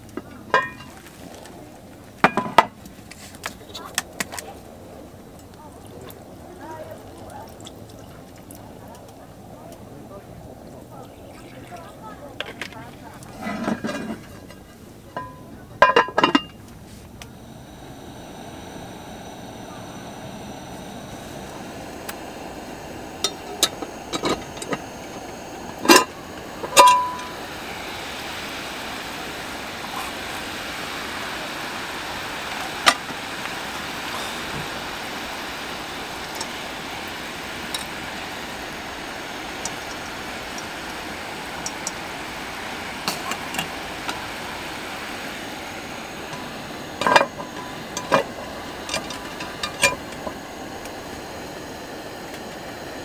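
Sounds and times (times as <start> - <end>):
chicken sizzling in a pot: 0.0 - 9.8, 10.8 - 53.0
gas camping stove hissing: 0.0 - 53.0
cast-iron lid clanking: 0.5 - 1.1, 12.4 - 16.8, 21.1 - 27.6, 46.3 - 50.4
tongs tapping metal: 25.8 - 27.4.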